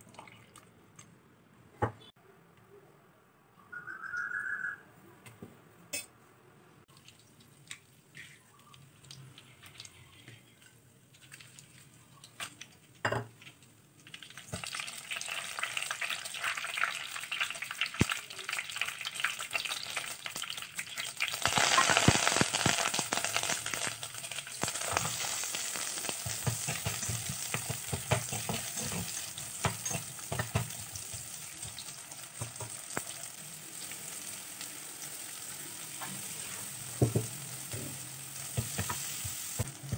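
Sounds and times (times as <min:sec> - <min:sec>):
chillies sizzling in hot oil: 0:08.1 - 0:39.9
spatula stirring: 0:24.3 - 0:32.8.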